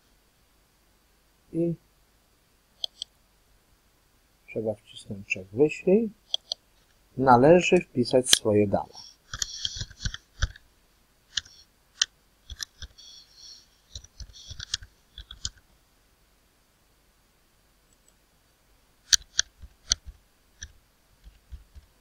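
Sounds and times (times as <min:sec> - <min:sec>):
computer keyboard keys clicking: 0:14.0 - 0:15.6.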